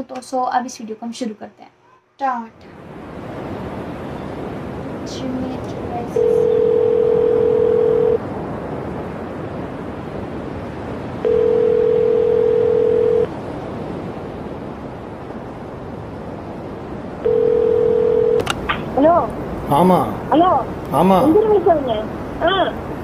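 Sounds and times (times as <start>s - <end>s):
telephone ringback tone: 6.1s - 8.2s, 11.2s - 13.3s, 17.2s - 18.4s.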